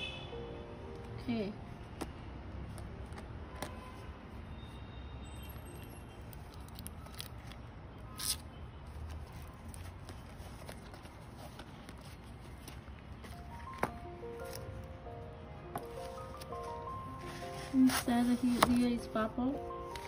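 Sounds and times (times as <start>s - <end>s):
low background noise: 0.0s - 20.0s
plastic film crinkle: 6.2s - 14.8s.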